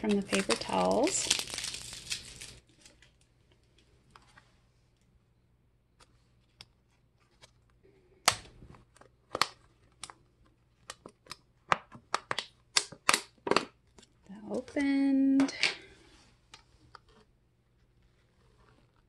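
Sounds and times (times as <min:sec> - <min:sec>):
plastic lid clicking and snapping: 0:11.2 - 0:13.7.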